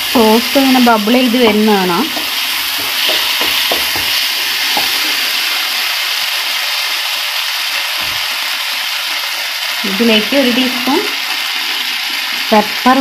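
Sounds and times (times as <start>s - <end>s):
vegetables sizzling in a frying pan: 0.0s - 13.0s
spatula knocking in pan: 2.0s - 5.2s.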